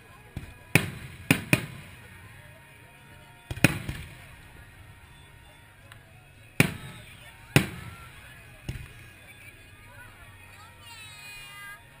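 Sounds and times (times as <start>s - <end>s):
fireworks bangs with echo: 0.3s - 2.2s, 3.5s - 4.4s, 6.6s - 9.0s.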